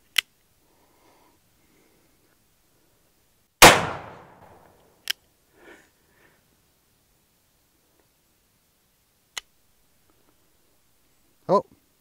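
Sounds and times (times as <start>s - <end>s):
revolver gunshot bang: 3.6s - 4.6s.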